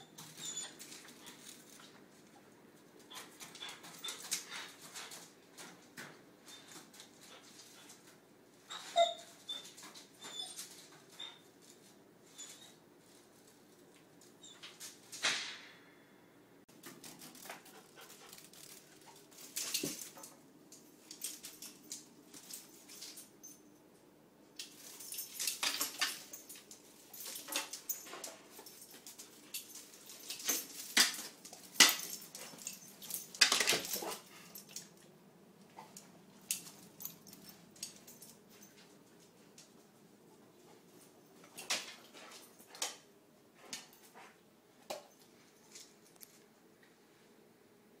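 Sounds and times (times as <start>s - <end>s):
dog claws clicking on tile floor: 0.1s - 8.2s, 16.7s - 23.6s, 24.6s - 39.8s, 41.4s - 46.5s.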